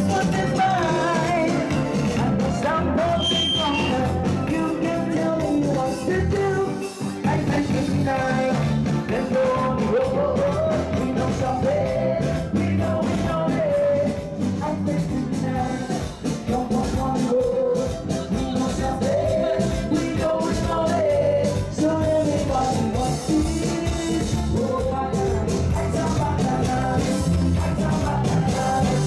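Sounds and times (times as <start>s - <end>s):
live band with male singer: 0.0s - 29.0s.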